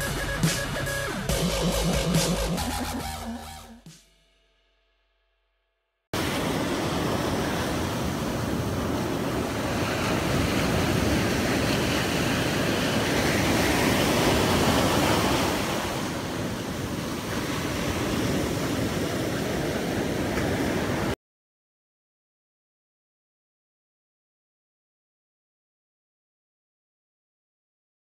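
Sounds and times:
ocean surf breaking: 6.2s - 21.2s.

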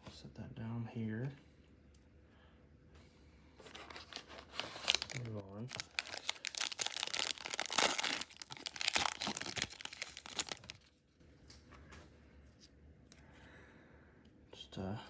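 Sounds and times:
wrapper tearing and crinkling: 3.8s - 10.9s.

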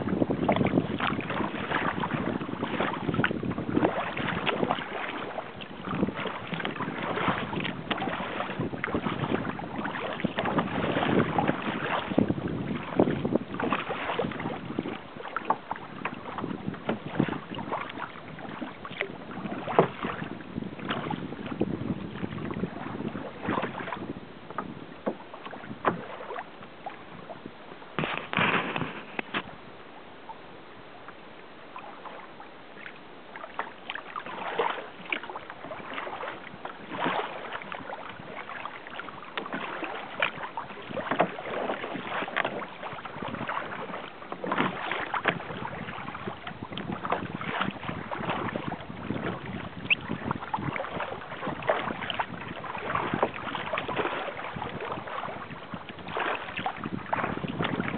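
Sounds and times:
rush of water and wind: 0.0s - 57.9s
water splashing against hull: 0.0s - 57.9s.

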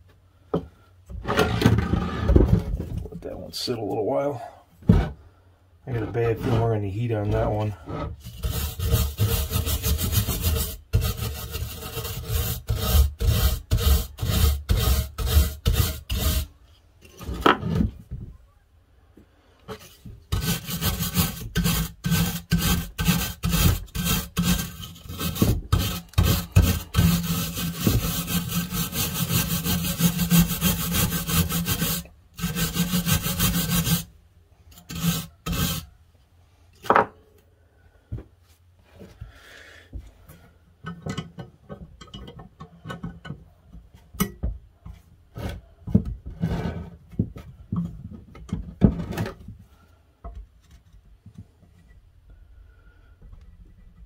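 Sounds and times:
wire brush scrubbing metal: 6.0s - 16.5s, 19.8s - 34.1s, 34.7s - 35.9s.

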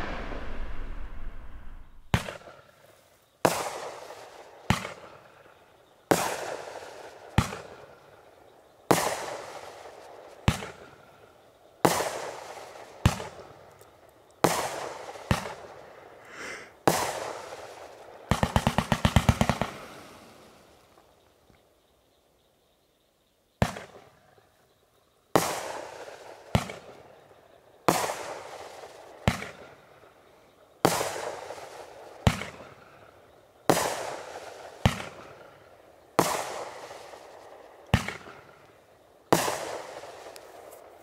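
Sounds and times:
fireworks bangs echoing: 0.0s - 2.4s, 33.7s - 35.5s, 38.0s - 38.4s, 39.3s - 40.7s
rapid firework pops: 10.5s - 10.8s, 14.4s - 15.7s, 16.9s - 20.2s, 23.6s - 24.1s, 25.4s - 27.0s, 27.9s - 29.7s, 30.9s - 32.7s, 33.7s - 35.5s, 36.2s - 40.7s.

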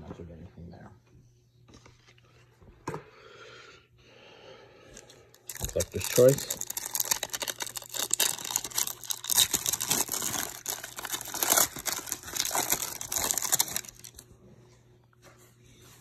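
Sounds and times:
foil wrapper crinkling: 4.9s - 14.2s.

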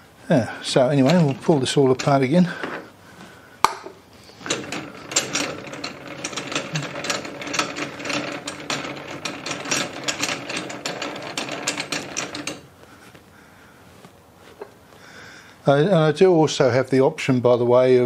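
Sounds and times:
lathe chuck ratcheting clicks: 0.7s - 2.3s, 4.3s - 12.7s.

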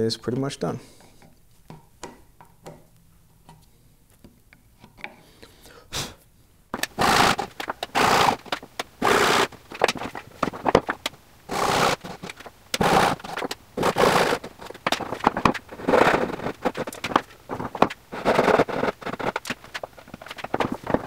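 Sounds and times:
hand tool scraping wood: 6.8s - 21.0s.

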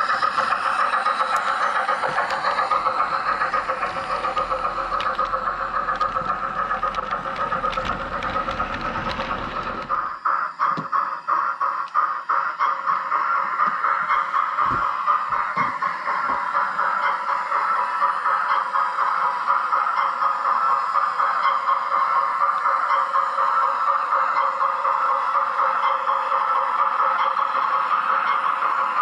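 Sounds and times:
wheels clicking over rail joints: 0.0s - 10.1s
low rumble of passing train: 0.0s - 29.0s
model train motor whine: 0.0s - 29.0s.

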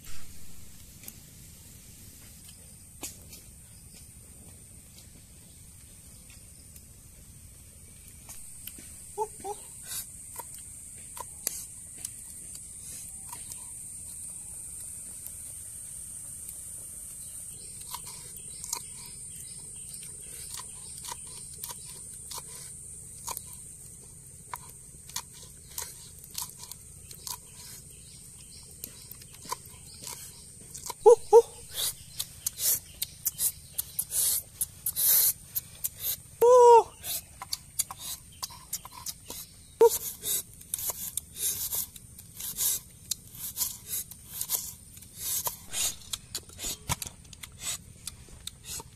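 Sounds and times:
high-pitched hiss: 0.0s - 4.2s, 7.9s - 19.6s, 31.0s - 48.0s.

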